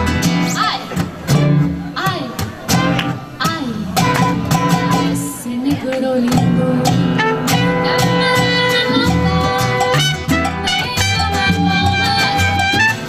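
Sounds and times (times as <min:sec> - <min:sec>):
acoustic guitar: 0:00.0 - 0:13.0
congas: 0:00.0 - 0:13.0
trumpet: 0:04.0 - 0:05.3, 0:07.0 - 0:13.0.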